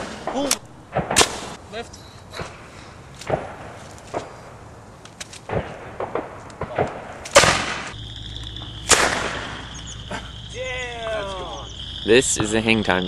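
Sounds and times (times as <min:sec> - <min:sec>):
air launcher firing bang: 0:08.8 - 0:09.6.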